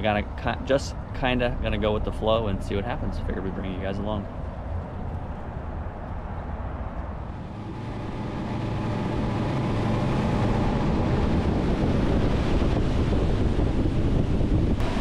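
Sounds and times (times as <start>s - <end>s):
wind on microphone: 0.0s - 15.0s
outboard engines running: 7.1s - 15.0s
rush of boat wake: 7.2s - 15.0s.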